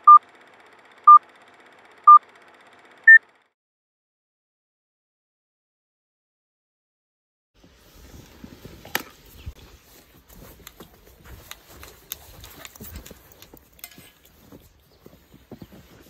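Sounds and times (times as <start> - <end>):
footsteps crunching in snow: 7.6 - 16.0.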